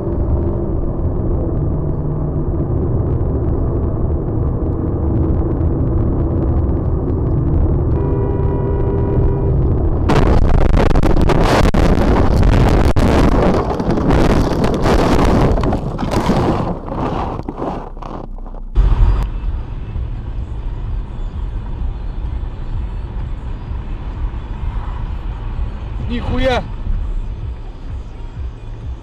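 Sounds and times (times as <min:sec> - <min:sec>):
low vehicle rumble: 0:00.0 - 0:29.0
vehicle crashing and scraping: 0:10.1 - 0:19.5.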